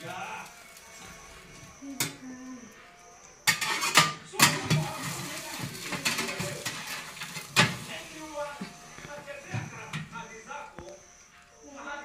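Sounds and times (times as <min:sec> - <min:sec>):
metal spatula scraping oven tray: 0:03.4 - 0:08.7.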